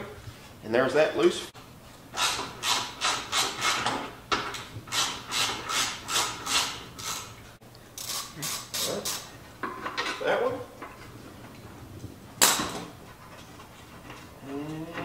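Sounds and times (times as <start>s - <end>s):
ratchet wrench clicking: 8.0s - 9.3s.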